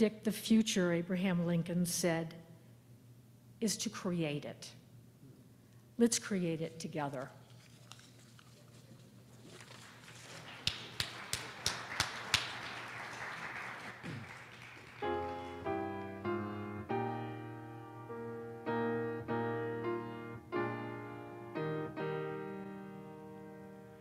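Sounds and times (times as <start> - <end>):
rustling: 7.1 - 10.6
piano playing hymn chords: 15.0 - 24.0.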